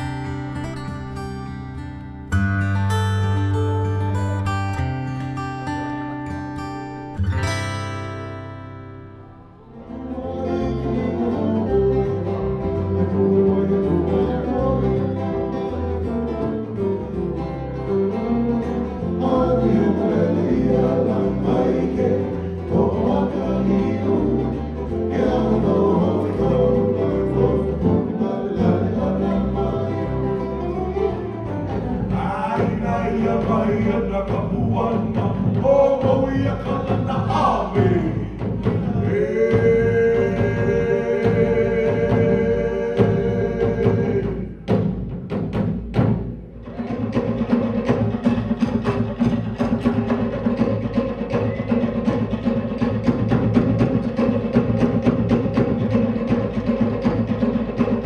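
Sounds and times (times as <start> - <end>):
bass line: 0.0 - 50.7
strummed ukulele and guitar: 0.0 - 58.0
man singing: 19.0 - 30.5, 32.0 - 44.6.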